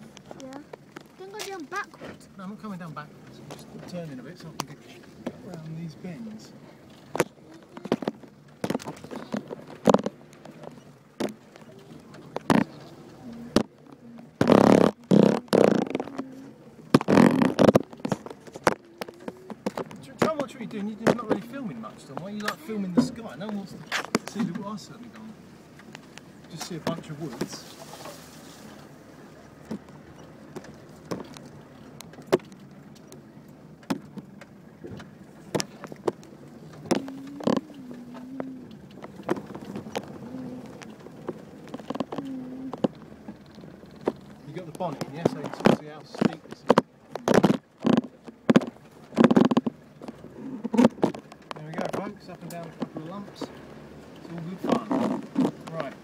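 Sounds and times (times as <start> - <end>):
engine low drone: 0.0 - 56.0
sharp knocks and clicks: 7.0 - 16.3, 16.9 - 21.5, 29.6 - 33.2, 33.8 - 56.0.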